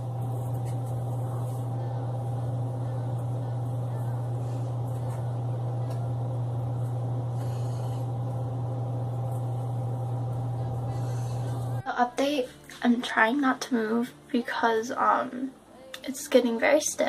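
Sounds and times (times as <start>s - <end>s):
steady machine hum: 0.0s - 11.9s.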